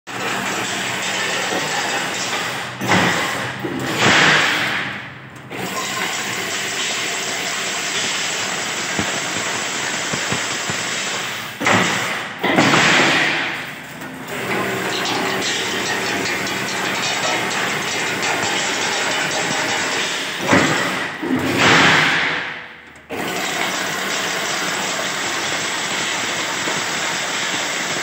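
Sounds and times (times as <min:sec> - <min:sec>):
fence mesh machine clattering: 0:07.8 - 0:22.2.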